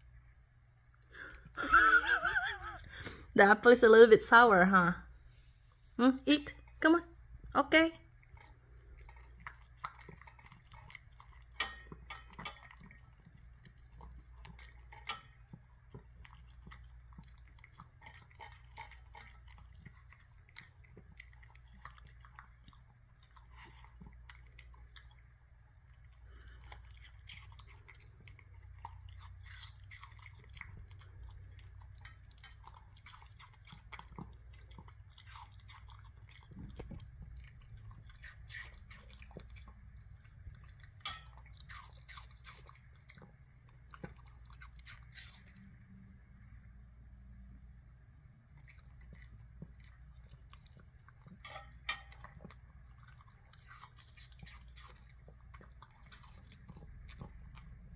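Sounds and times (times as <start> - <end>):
dog crunching apple: 26.3 - 45.6, 48.6 - 57.9.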